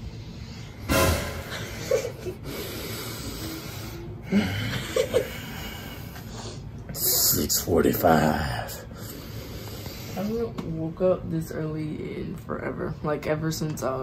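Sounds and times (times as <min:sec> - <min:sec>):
man grunting and breathing: 0:04.2 - 0:06.0.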